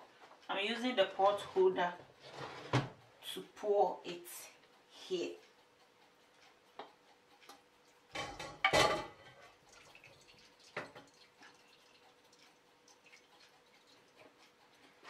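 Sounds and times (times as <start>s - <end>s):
pot knocking against colander: 8.2s - 9.3s.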